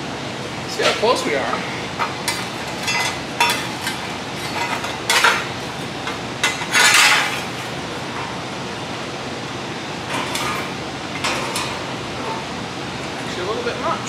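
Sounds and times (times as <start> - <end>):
sheet metal clanking and rattling: 0.8 - 8.4, 10.0 - 12.5.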